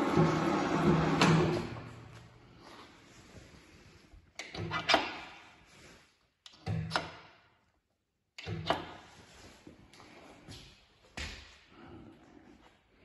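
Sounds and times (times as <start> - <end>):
machine running noise: 0.0 - 2.0.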